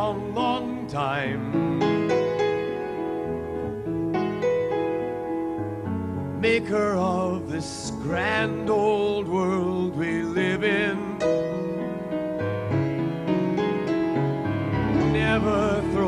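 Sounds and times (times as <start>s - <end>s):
man singing with vibrato: 0.0s - 2.8s, 6.4s - 11.8s, 14.9s - 16.0s
piano chords: 0.0s - 16.0s.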